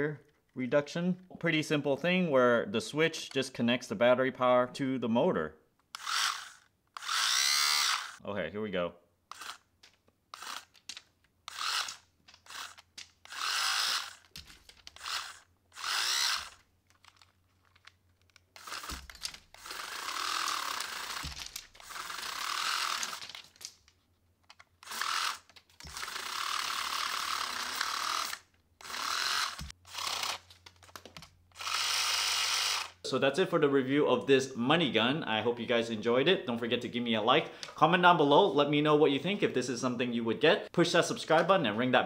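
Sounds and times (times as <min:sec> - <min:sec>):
toy motor spinning feed wheel: 0:05.9 - 0:08.2, 0:09.3 - 0:09.7, 0:10.3 - 0:23.6, 0:24.8 - 0:33.0.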